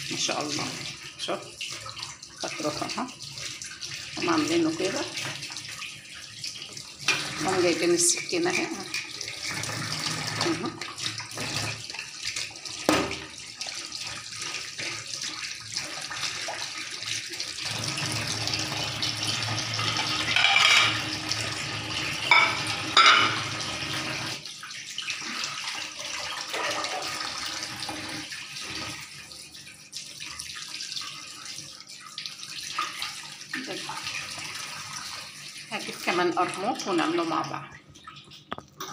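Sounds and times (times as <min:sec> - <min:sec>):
tap water running into sink: 0:00.0 - 0:38.9.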